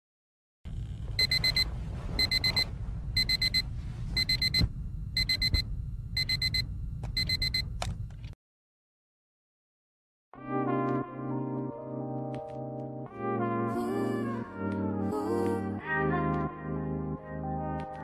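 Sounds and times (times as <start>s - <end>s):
low room rumble: 0.7s - 8.3s
alarm clock beeping: 1.2s - 3.6s, 4.2s - 4.6s, 5.2s - 5.6s, 6.2s - 6.6s, 7.2s - 7.6s.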